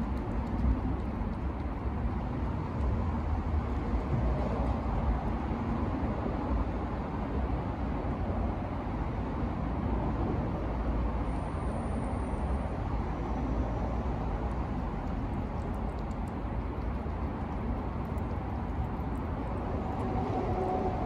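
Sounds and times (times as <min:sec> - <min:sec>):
distant road traffic rumble: 0:00.0 - 0:21.0.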